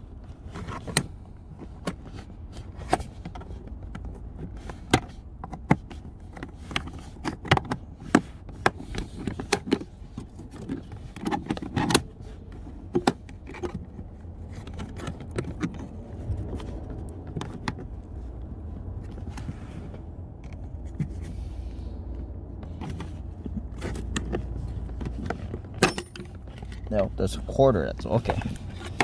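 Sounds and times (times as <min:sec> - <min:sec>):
low steady rumble: 0:00.0 - 0:29.0
plastic trim clicks and scrapes: 0:00.4 - 0:17.9, 0:22.6 - 0:26.9, 0:28.2 - 0:29.0.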